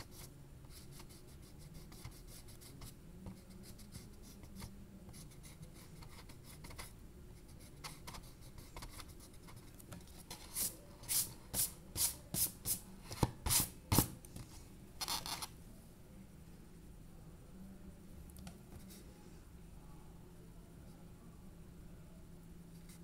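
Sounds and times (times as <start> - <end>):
pencil scratching on paper: 0.0 - 12.5.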